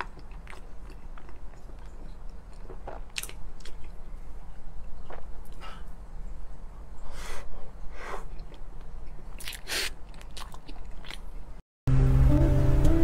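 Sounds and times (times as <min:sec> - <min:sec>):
person chewing: 0:00.0 - 0:05.8, 0:08.2 - 0:11.6.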